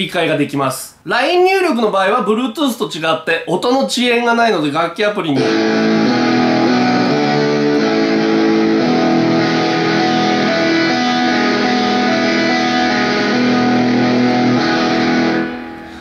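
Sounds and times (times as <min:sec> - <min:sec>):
strummed chords from speaker: 0:05.4 - 0:16.0.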